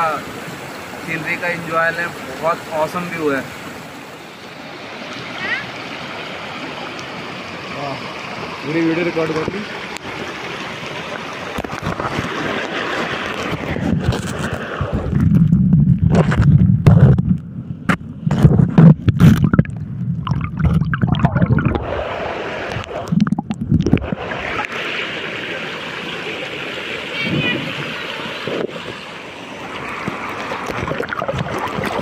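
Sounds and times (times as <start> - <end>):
stream rushing over stones: 0.0 - 17.2, 17.9 - 32.0
underwater gurgling and rumbling: 9.8 - 25.3, 27.2 - 32.0
underwater clicks and knocks: 11.5 - 21.8, 22.7 - 24.2, 30.0 - 32.0.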